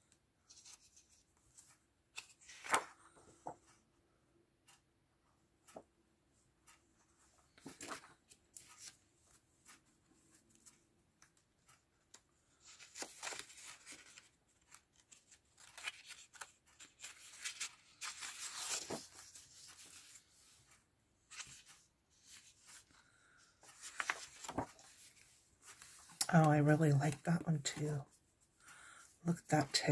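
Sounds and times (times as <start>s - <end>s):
paper rustling and sliding: 0.5s - 3.7s, 12.6s - 23.0s, 23.6s - 26.2s.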